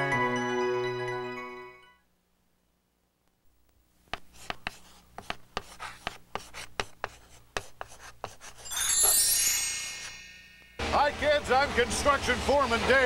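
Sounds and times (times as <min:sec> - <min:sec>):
chalk tapping and scratching: 0:04.1 - 0:08.7
bright chime: 0:08.6 - 0:11.5.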